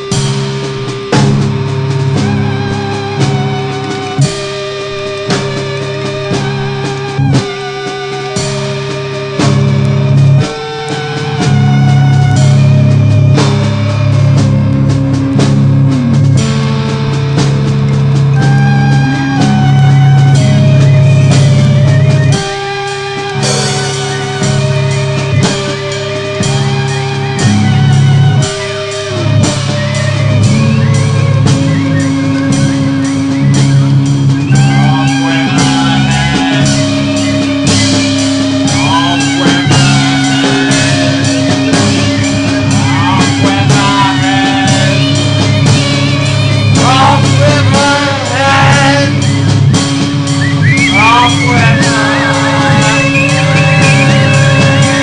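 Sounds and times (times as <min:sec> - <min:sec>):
drum kit beat: 0:00.0 - 0:55.0
guitar: 0:00.0 - 0:55.0
person singing: 0:34.4 - 0:37.6, 0:38.6 - 0:49.4, 0:50.9 - 0:55.0.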